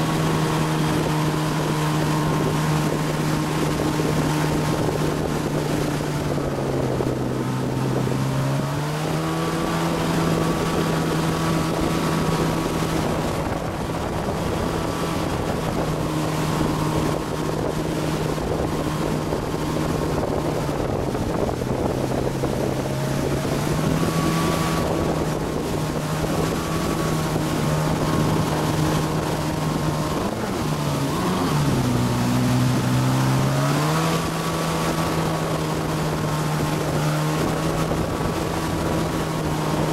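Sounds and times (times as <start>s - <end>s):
motorboat engine running: 0.0s - 39.9s
rushing boat wake: 0.0s - 39.9s
wind buffeting microphone: 0.0s - 39.9s.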